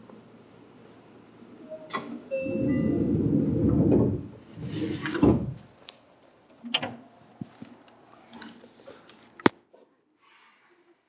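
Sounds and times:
train doors sliding shut: 0:01.6 - 0:05.7.

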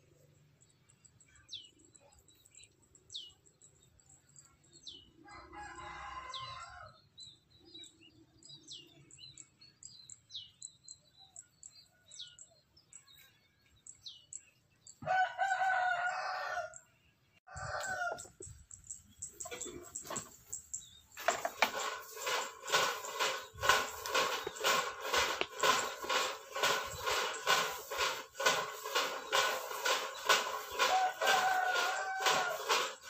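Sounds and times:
rooster crowing: 0:05.2 - 0:07.0, 0:15.0 - 0:16.8, 0:17.5 - 0:18.2, 0:30.1 - 0:33.0.

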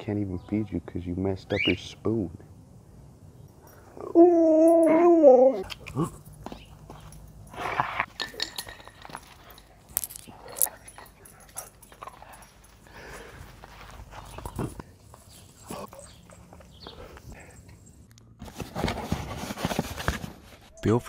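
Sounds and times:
dog howl-like moan: 0:03.9 - 0:05.7.

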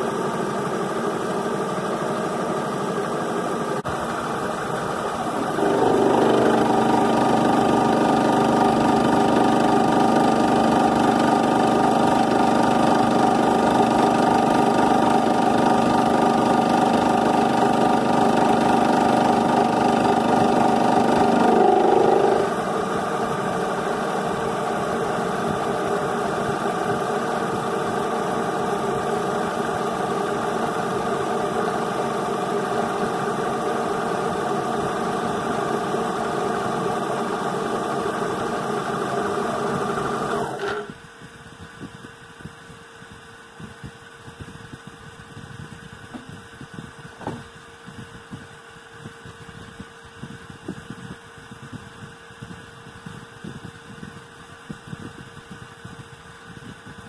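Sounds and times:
mill spindle running: 0:00.0 - 0:41.1, 0:46.0 - 0:47.6
faint machine hum: 0:00.0 - 0:57.0
end mill cutting metal: 0:04.0 - 0:41.0.

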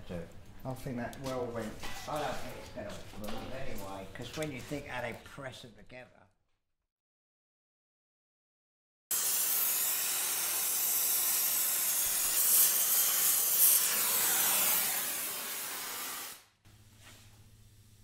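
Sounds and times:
gas torch flame hissing: 0:09.1 - 0:16.5.

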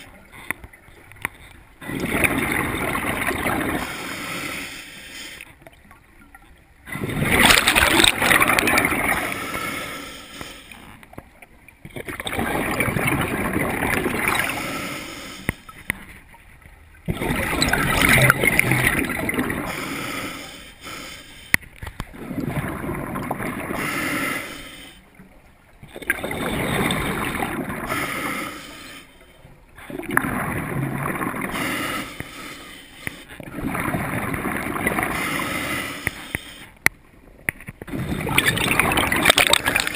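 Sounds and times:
bubbling exhalation through regulator: 0:01.8 - 0:03.9, 0:06.9 - 0:09.4, 0:17.1 - 0:19.8, 0:37.9 - 0:39.9
diver inhaling: 0:03.8 - 0:05.5, 0:09.2 - 0:10.8, 0:14.4 - 0:15.9, 0:19.5 - 0:21.7, 0:23.6 - 0:25.1, 0:27.8 - 0:29.4, 0:31.4 - 0:33.3, 0:35.0 - 0:36.8.

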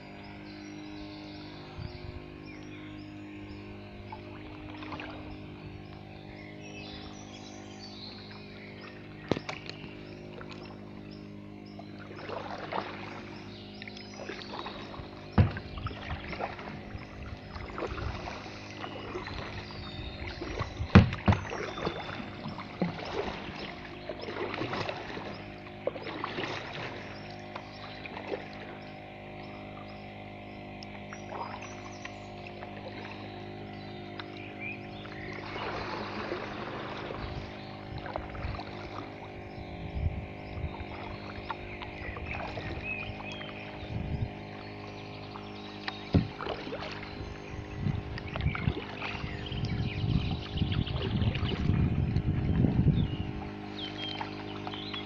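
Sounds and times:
steady hum: 0:00.0 - 0:55.0
paddle splashing in water: 0:04.1 - 0:05.4, 0:08.3 - 0:10.9, 0:12.0 - 0:28.8, 0:30.8 - 0:39.5, 0:40.3 - 0:55.0
sharp knocks: 0:15.4 - 0:15.7, 0:20.9 - 0:21.5.

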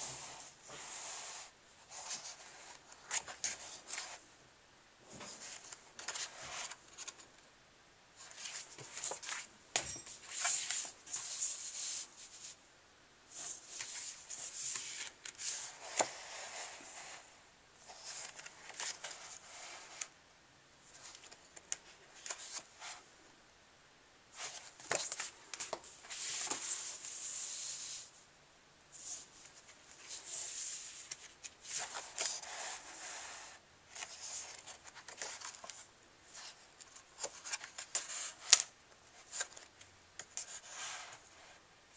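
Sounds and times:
paper pages rustling: 0:01.9 - 0:04.2, 0:05.2 - 0:07.3, 0:08.2 - 0:12.4, 0:13.4 - 0:17.2, 0:17.8 - 0:20.1, 0:24.4 - 0:27.9, 0:29.1 - 0:41.2.

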